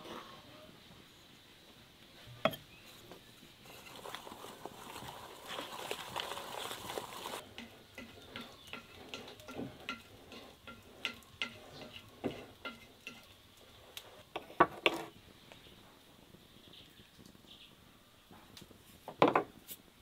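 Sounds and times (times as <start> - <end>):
whisk stirring batter in bowl: 3.7 - 13.3
utensils and bowls tapping: 7.4 - 13.3.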